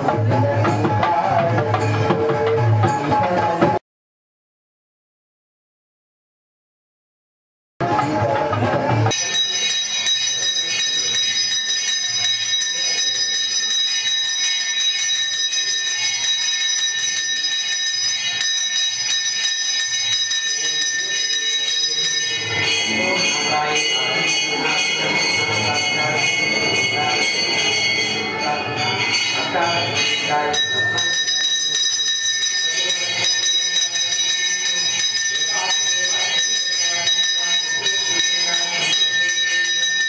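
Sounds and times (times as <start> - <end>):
temple bells ringing rapidly: 0.0 - 3.6, 7.8 - 40.0
lower ringing sounds: 9.1 - 40.0.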